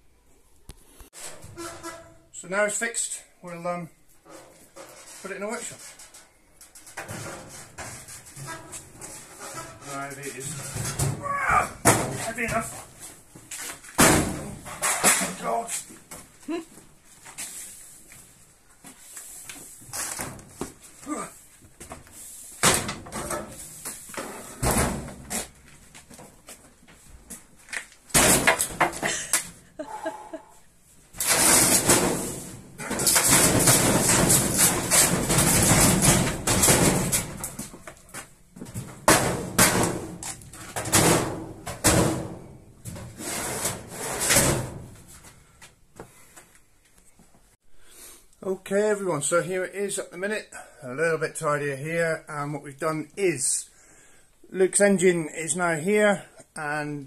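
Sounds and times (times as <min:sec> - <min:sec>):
metal cabinet knocks and bangs: 0:11.8 - 0:12.7, 0:14.0 - 0:15.4, 0:24.4 - 0:25.4, 0:28.1 - 0:29.0, 0:31.2 - 0:37.7, 0:38.6 - 0:45.0
scraping and clattering: 0:31.2 - 0:38.0.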